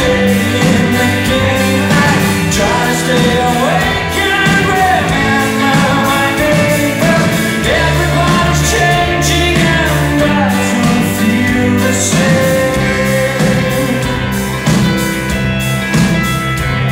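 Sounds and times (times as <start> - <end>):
man singing lead vocal: 0.0 - 14.8
live pop-rock band playing: 0.0 - 16.9.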